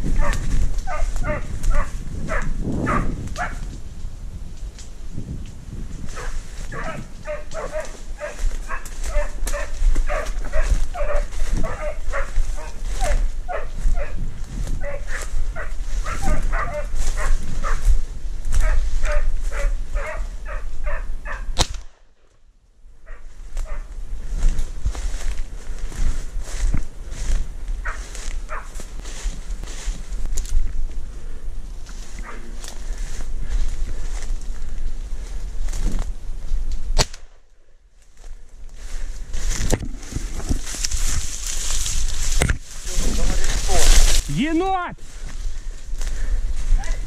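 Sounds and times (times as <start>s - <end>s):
pushing through dry reeds: 0.0s - 21.9s, 23.1s - 37.3s, 38.0s - 47.0s
low wind rumble: 0.0s - 47.0s
hounds baying: 0.1s - 3.6s, 6.1s - 17.9s, 18.5s - 21.5s, 23.0s - 23.9s, 27.8s - 28.9s, 32.1s - 32.7s.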